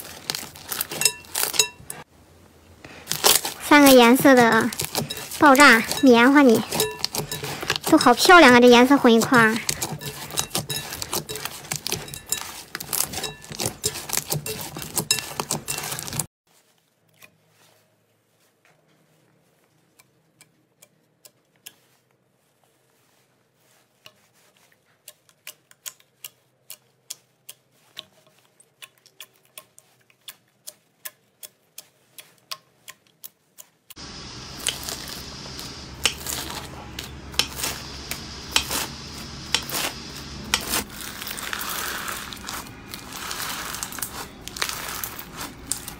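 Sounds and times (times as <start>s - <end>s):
crunchy slime crackling: 0.0s - 2.0s, 2.9s - 16.2s, 34.0s - 45.9s.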